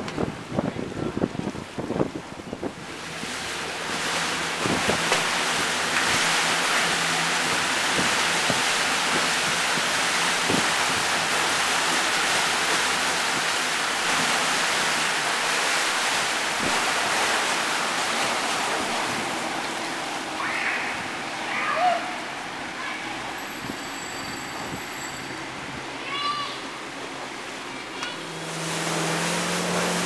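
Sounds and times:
low engine hum: 0.0 - 30.0
water rushing along boat hull: 0.0 - 30.0.

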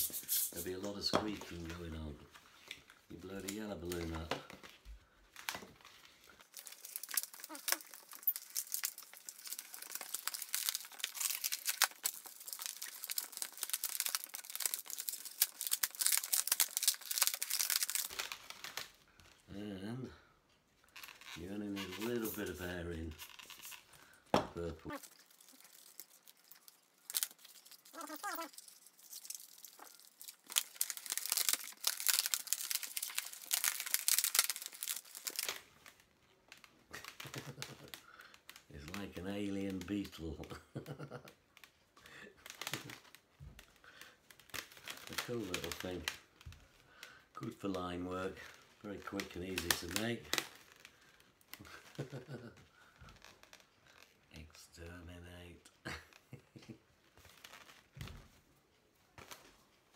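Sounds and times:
balloon being twisted: 0.0 - 0.7, 6.6 - 18.7, 27.0 - 35.6
balloons rubbing together: 0.0 - 0.7, 21.0 - 23.9.

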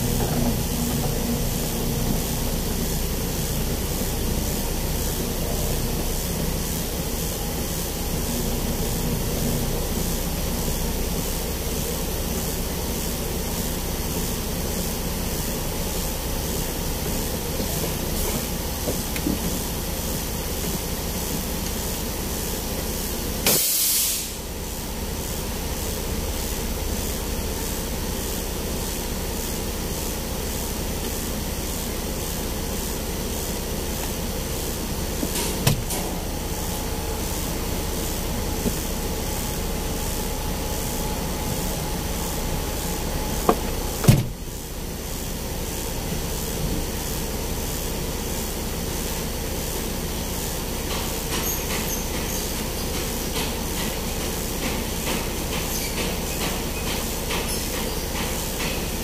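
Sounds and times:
engine idling rumble: 0.0 - 23.4.

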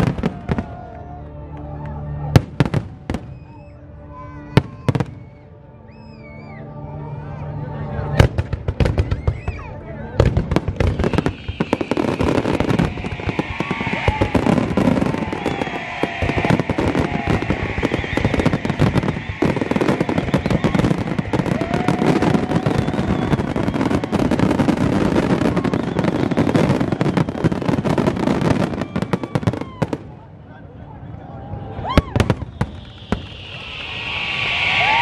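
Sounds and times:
fireworks bangs and crackling: 0.0 - 1.0, 2.3 - 3.6, 8.2 - 30.3, 31.6 - 35.0.

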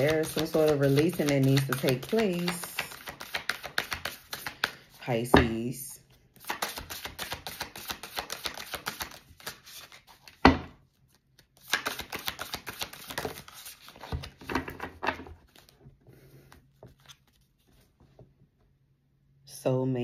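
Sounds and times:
cards being shuffled: 0.0 - 5.0, 6.4 - 10.4, 11.0 - 15.8, 16.4 - 18.2.

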